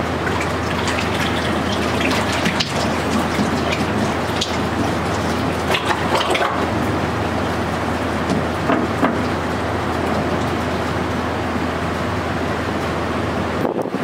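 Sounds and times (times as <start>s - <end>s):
liquid splashing into a drum: 0.0s - 10.8s
steady low hum: 0.0s - 14.0s.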